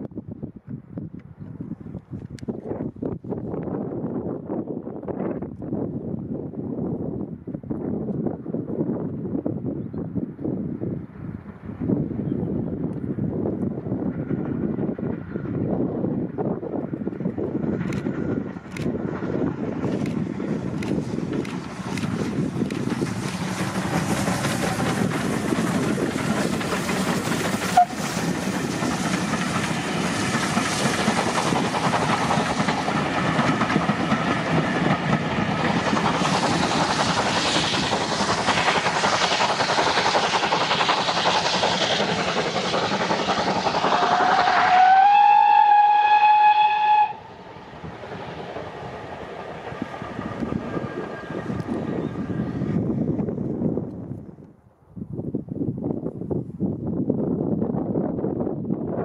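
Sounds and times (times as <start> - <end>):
wind noise on microphone: 0.0 - 59.0
steam locomotive passing: 10.4 - 54.3
steam whistle blast: 27.7 - 28.1, 43.9 - 47.3.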